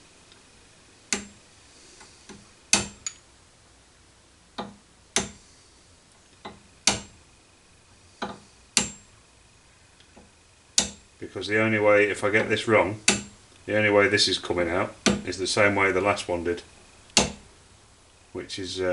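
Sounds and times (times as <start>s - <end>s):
hammer tapping metal: 2.7s - 3.2s, 6.4s - 7.1s, 8.2s - 9.1s, 10.8s - 11.0s, 13.0s - 13.4s.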